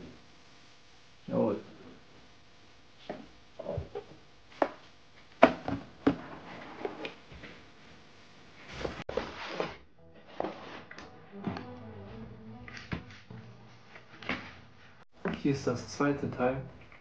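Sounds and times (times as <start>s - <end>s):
cardboard rustling and sliding: 8.6s - 10.9s.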